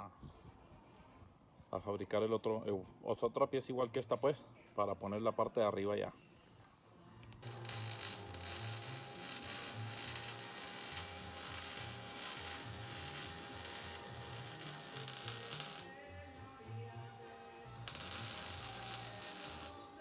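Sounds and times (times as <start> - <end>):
power tool grinding steel: 7.4 - 16.0, 17.8 - 20.0.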